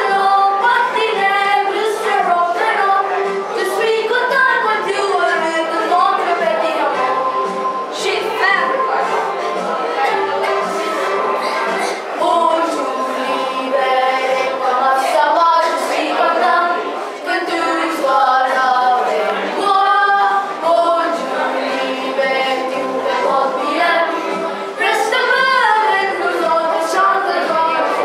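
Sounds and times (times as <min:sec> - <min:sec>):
group singing: 0:00.0 - 0:28.0.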